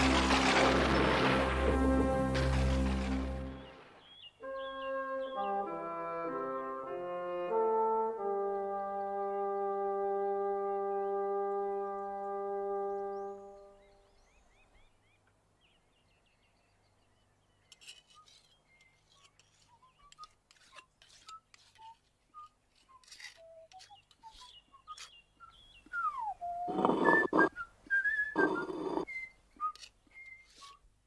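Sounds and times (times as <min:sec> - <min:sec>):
faint chirps and whistles: 0:18.0 - 0:30.8
cartoon rasping snores: 0:26.6 - 0:27.5, 0:28.4 - 0:29.1.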